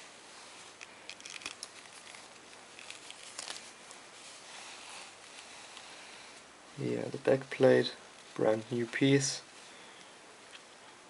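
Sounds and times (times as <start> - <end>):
plastic watch clicks and rustles: 0.8 - 3.6.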